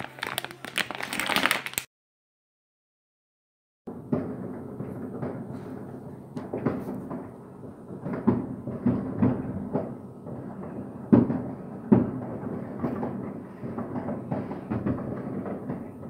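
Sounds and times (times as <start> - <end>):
muffled fireworks bangs: 3.9 - 16.0.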